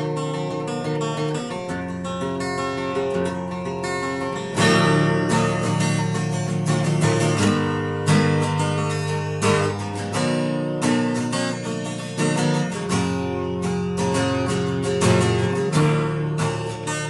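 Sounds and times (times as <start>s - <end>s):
plucked-string instrumental music: 0.0s - 17.0s.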